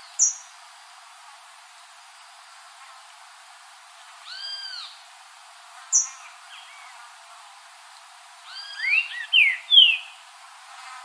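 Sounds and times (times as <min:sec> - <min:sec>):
bird whistling song: 0:08.5 - 0:10.2.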